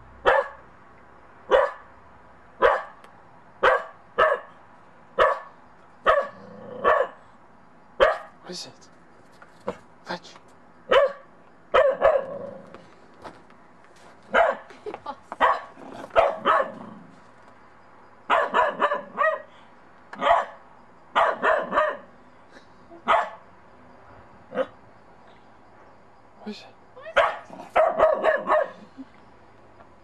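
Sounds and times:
puppy barking: 0.2 - 0.6, 1.5 - 1.9, 2.6 - 3.0, 3.6 - 4.6, 5.2 - 7.2, 8.0 - 8.4, 10.9 - 12.5, 14.3 - 14.7, 15.4 - 16.9, 18.3 - 19.5, 20.2 - 20.6, 21.2 - 22.1, 23.0 - 23.4, 27.0 - 28.9.

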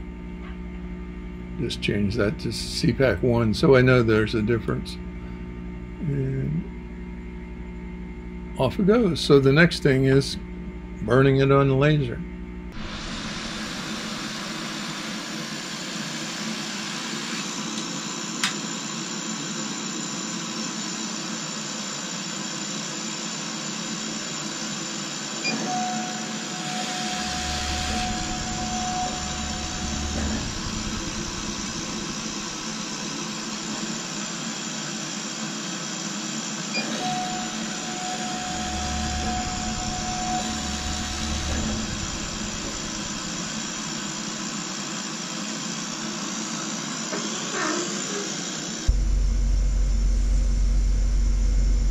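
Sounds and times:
laser cutter fans whirring: 0.0 - 51.9
high whine with low thuds: 12.2 - 15.8, 26.6 - 34.0, 37.1 - 44.9, 48.9 - 51.9.

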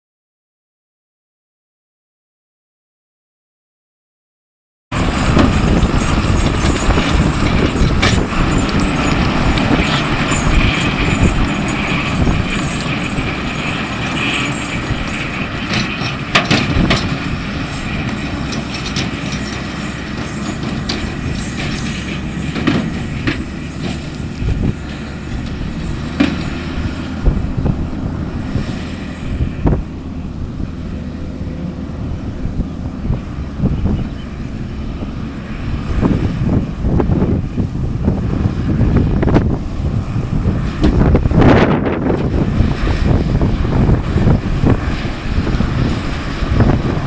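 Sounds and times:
tractor engine and mulcher blades: 4.9 - 47.0.

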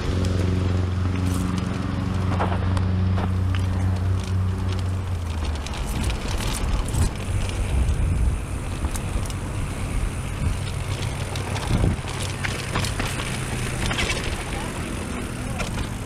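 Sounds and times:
bike clicks and rattles: 0.0 - 16.0
tyre noise on dirt: 0.0 - 16.0
wind rumbling on microphone: 0.0 - 16.0.

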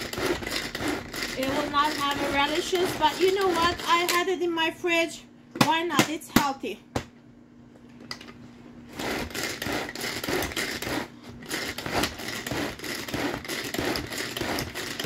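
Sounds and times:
pull-cord chopper whirring: 0.0 - 4.3, 8.9 - 15.0.

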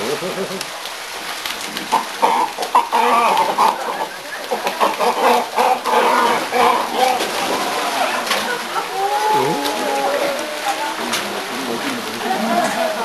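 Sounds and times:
water splashing: 0.0 - 13.0
cormorants calling: 1.9 - 7.9.

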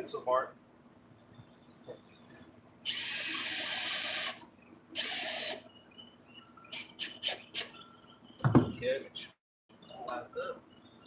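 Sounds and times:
cordless drill driving screw: 2.9 - 4.4, 5.0 - 5.6.

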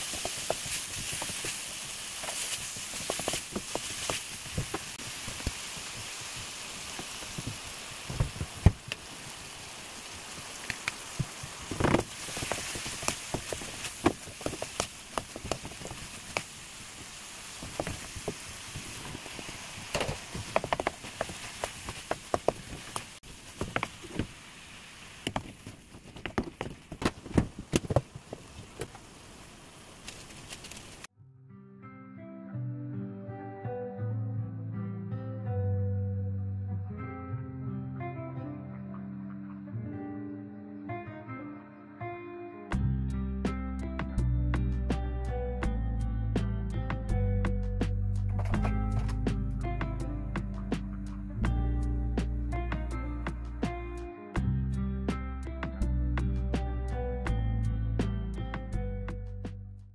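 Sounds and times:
squid sizzling in a wok: 0.0 - 26.0.

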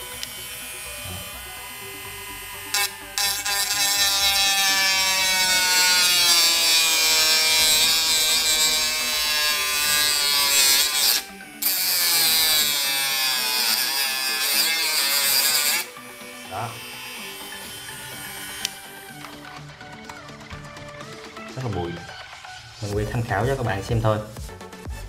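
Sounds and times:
rotary tool cutting circuit board: 0.0 - 19.2.

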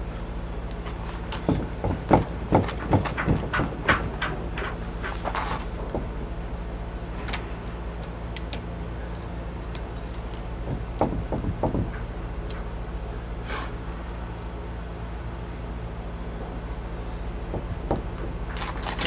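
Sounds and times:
steady low hum: 0.0 - 19.0
rudder clicking and knocking: 0.7 - 7.5, 10.4 - 12.8, 17.1 - 19.0.

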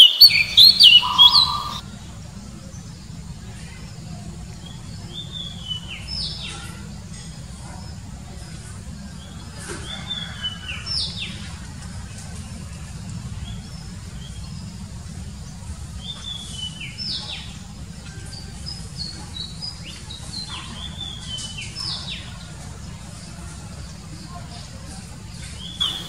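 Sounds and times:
bird singing whistled notes: 0.0 - 1.8, 25.6 - 26.0.

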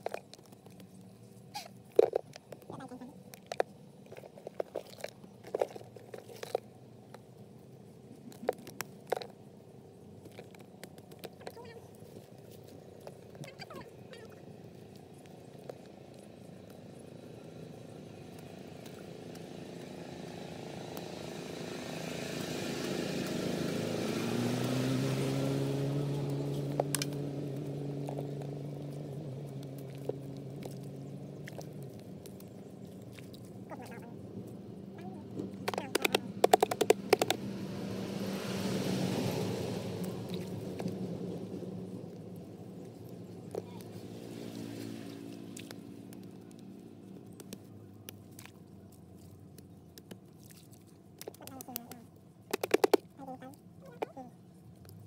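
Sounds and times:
sharp crunches and crackles: 0.0 - 7.3
motor engine humming: 0.0 - 50.3.

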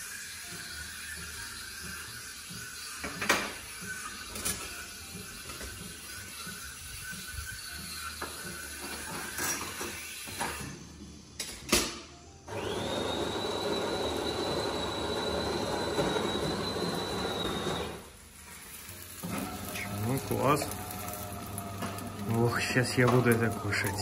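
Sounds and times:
coffee machine humming and whining: 12.4 - 18.2, 19.2 - 24.0.

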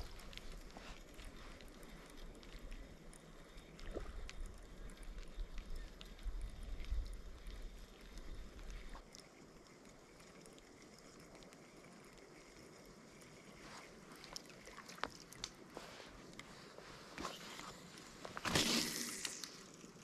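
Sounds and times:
wind rumbling on microphone: 0.0 - 9.1
flowing water: 0.0 - 20.0.

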